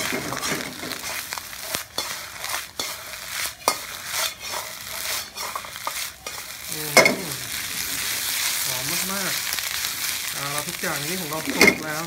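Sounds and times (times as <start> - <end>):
ladle knocking and scraping wok: 0.0 - 7.3, 11.3 - 12.0
noodles sizzling in a wok: 0.0 - 12.0.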